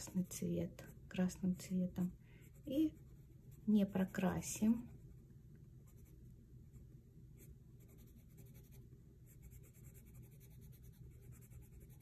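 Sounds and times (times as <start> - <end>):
pencil scratching on paper: 7.4 - 12.0.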